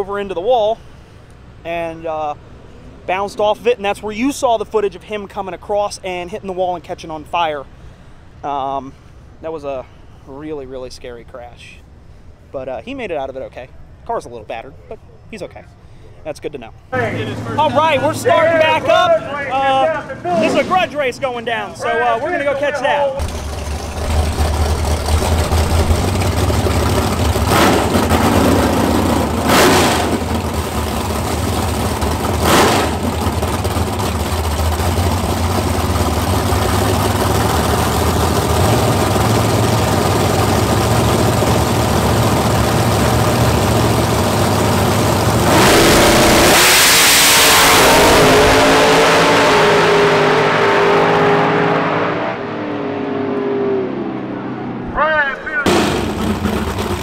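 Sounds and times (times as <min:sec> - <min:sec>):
race car engines idling: 0:00.0 - 0:46.5, 0:54.7 - 0:57.0
race cars launching full throttle: 0:17.0 - 0:57.0
sharp throttle blips: 0:22.0 - 0:52.5.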